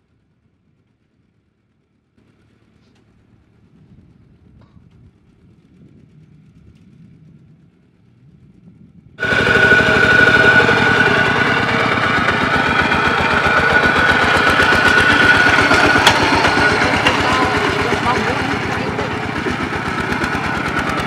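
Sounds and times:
tractor engine putter: 9.2 - 21.0.

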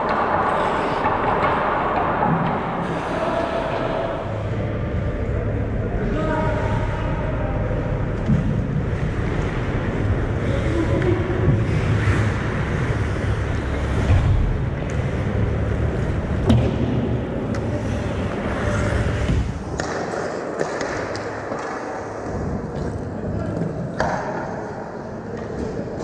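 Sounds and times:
hockey sticks and puck knocking: 0.0 - 3.1, 18.4 - 24.6
low arena hum: 0.0 - 26.0.

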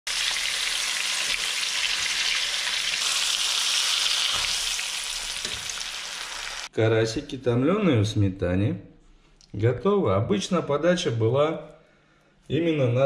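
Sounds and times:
fish sizzling in frying pan: 0.1 - 6.7.

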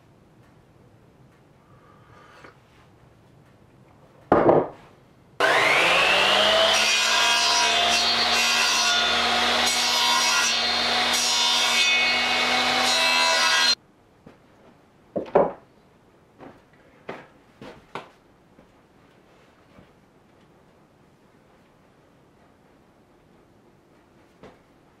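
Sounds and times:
power tool cutting wood: 5.4 - 13.8.

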